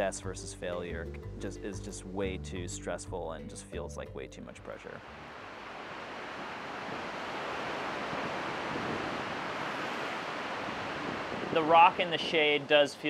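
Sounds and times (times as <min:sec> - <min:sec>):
ocean surf breaking: 0:05.0 - 0:13.0.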